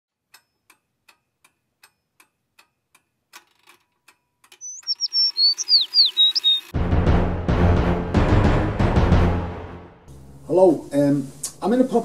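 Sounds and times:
faint regular ticking: 0.2s - 5.1s
quick high chirps: 4.6s - 6.7s.

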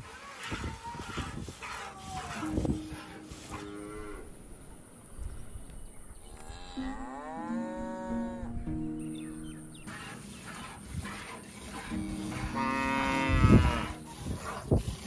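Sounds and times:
cow mooing: 6.4s - 8.6s, 11.7s - 14.1s.

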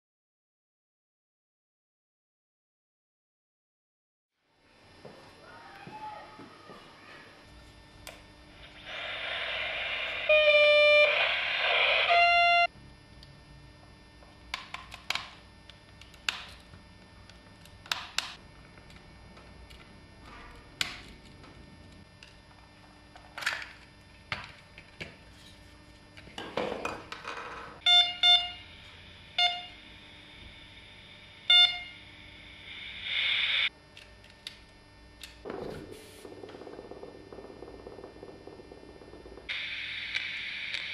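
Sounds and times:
walkie-talkie static hiss: 8.6s - 12.7s, 32.3s - 33.7s, 39.5s - 40.9s.

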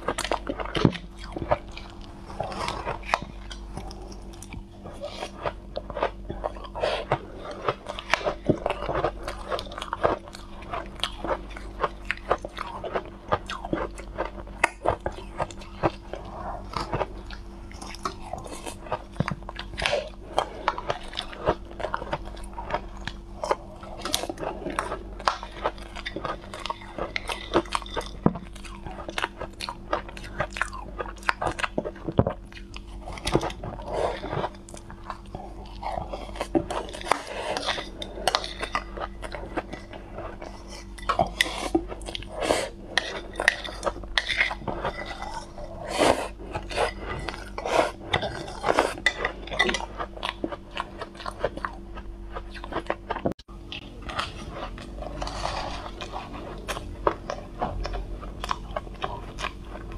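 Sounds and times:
crunching and chewing ice: 0.0s - 59.9s
metal spoon scraping bowl: 42.9s - 49.9s.

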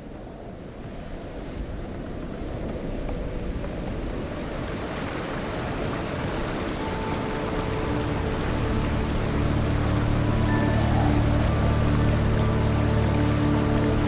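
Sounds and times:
river rushing over rapids: 3.8s - 14.0s
soft sustained music notes: 5.8s - 14.0s.

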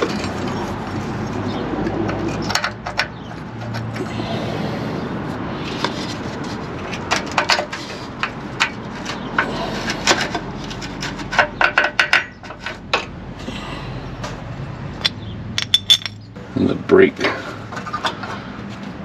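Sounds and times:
steady background noise: 0.0s - 19.0s
metal tools clinking: 15.0s - 16.3s.

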